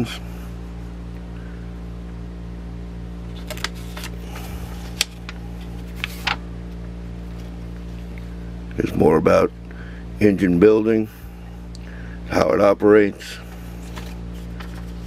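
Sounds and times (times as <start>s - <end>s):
steady low hum: 0.0s - 15.0s
book pages rustling: 3.2s - 6.4s, 7.2s - 8.2s, 13.5s - 15.0s.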